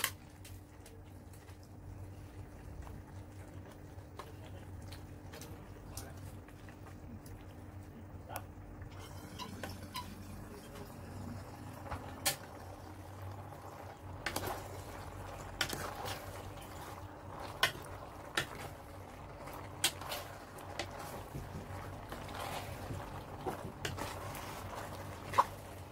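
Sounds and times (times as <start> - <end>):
low steady hum: 0.0 - 25.9
pasta shuffling: 11.7 - 25.9.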